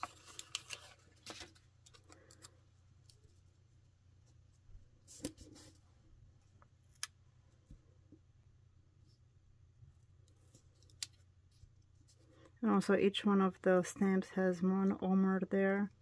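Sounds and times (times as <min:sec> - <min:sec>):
light paper rustles: 0:00.0 - 0:03.4.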